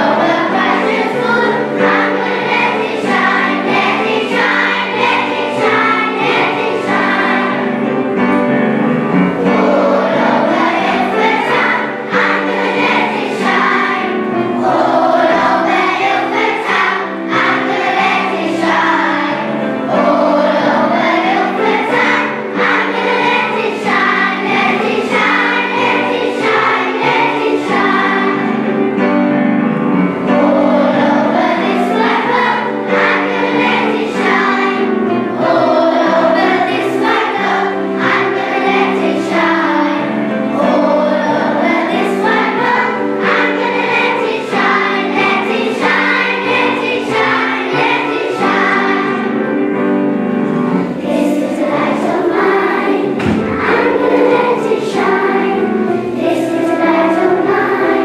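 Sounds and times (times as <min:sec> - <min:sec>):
children's choir singing: 0:00.0 - 0:58.0.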